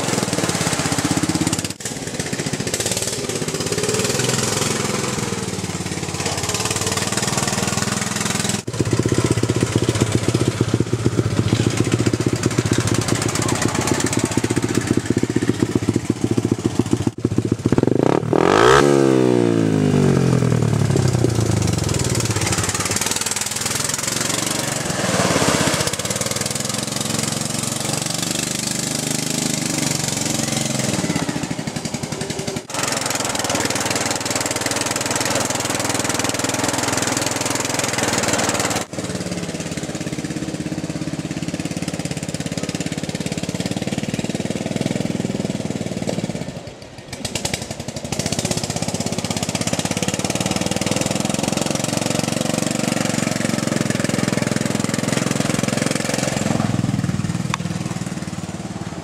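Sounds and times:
lawn tractor engine running: 0:00.0 - 0:59.0.

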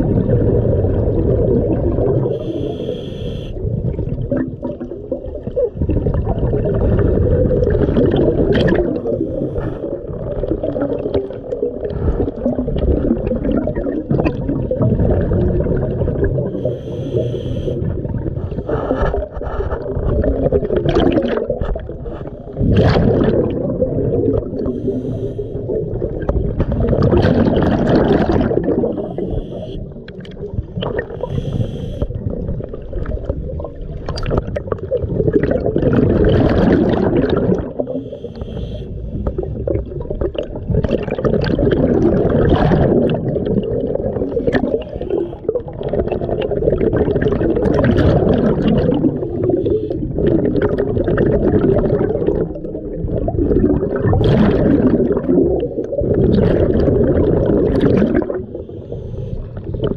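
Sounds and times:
gurgling exhaled bubbles: 0:00.0 - 0:59.9
regulator breaths underwater: 0:02.2 - 0:03.8, 0:08.9 - 0:10.2, 0:16.4 - 0:20.3, 0:24.5 - 0:26.2, 0:26.9 - 0:32.4, 0:36.5 - 0:39.9, 0:44.2 - 0:45.7, 0:48.9 - 0:50.5, 0:58.0 - 0:59.9.

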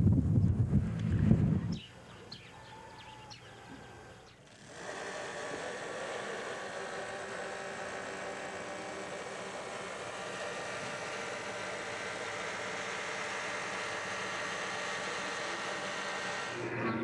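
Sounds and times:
machine hum with hiss: 0:03.8 - 0:17.0.

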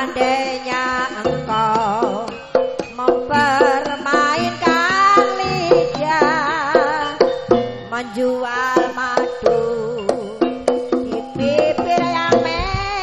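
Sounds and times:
sharp drum strokes: 0:00.0 - 0:07.9
sustained wavering melody: 0:00.0 - 0:12.7
gamelan music: 0:00.0 - 0:12.9.

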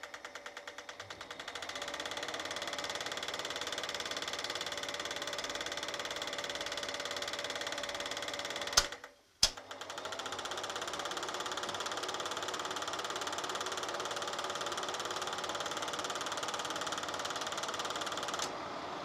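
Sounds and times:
film projector clattering: 0:00.0 - 0:18.7
projector switch click: 0:08.7 - 0:09.6.

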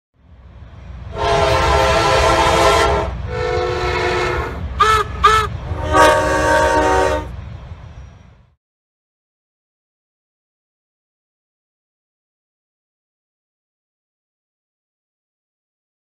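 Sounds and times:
low train rumble: 0:00.2 - 0:08.6
train horn blasts: 0:01.1 - 0:07.4.

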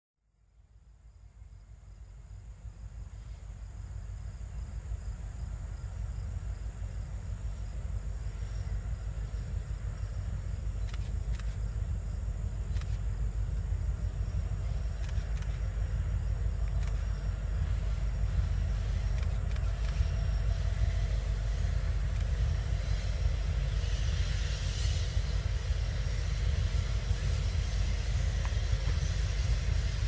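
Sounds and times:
insects droning: 0:00.4 - 0:30.0
locomotive engine rumble: 0:01.6 - 0:30.0.

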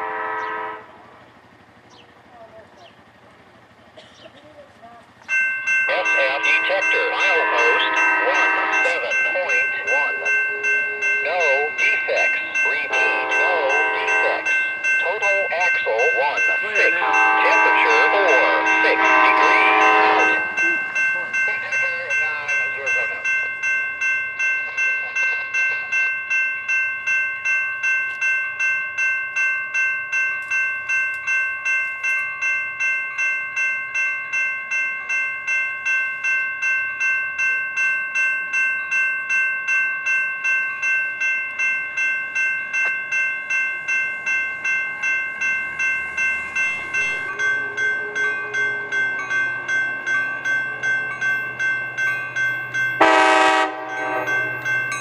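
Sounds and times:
train horn blast: 0:00.0 - 0:01.1, 0:06.0 - 0:11.8, 0:12.8 - 0:14.5, 0:16.9 - 0:20.7, 0:53.0 - 0:54.6
railway bell ringing: 0:00.0 - 0:55.0.

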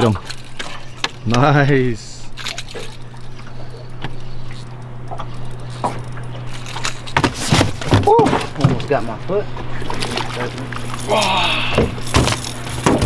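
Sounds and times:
steady low hum: 0:00.0 - 0:13.0
water trickling and sloshing: 0:00.0 - 0:13.0.

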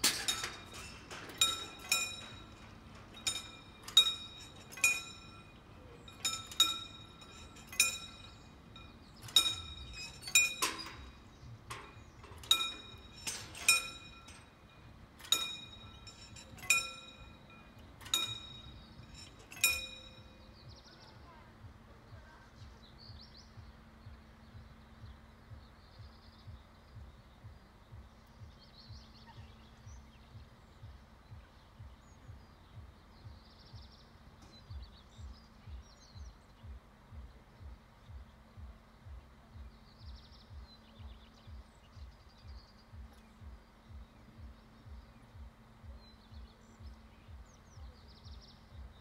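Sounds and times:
level-crossing warning bells: 0:00.0 - 0:20.6
low steady hum: 0:00.0 - 0:49.0.

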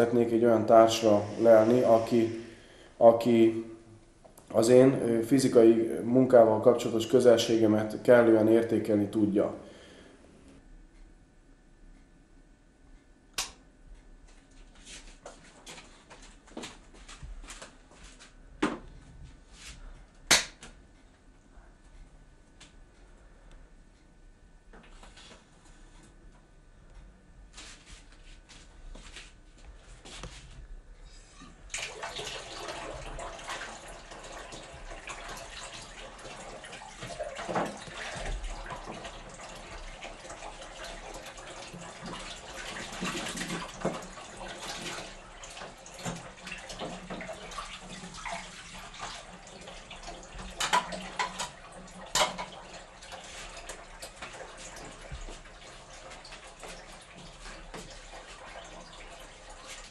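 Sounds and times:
dishes being washed: 0:31.3 - 0:59.9
tap running into sink: 0:37.0 - 0:39.9, 0:50.3 - 0:52.6.

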